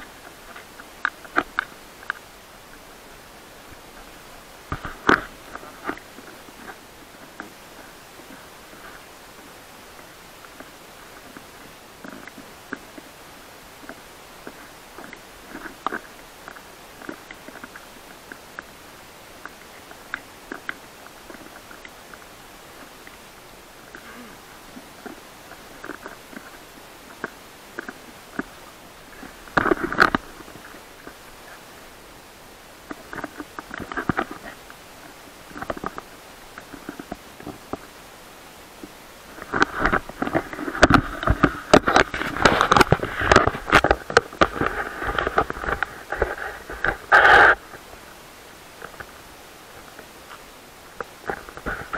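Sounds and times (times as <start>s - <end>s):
steady hiss: 0.0s - 51.9s
camera knocking and scraping: 39.4s - 47.7s.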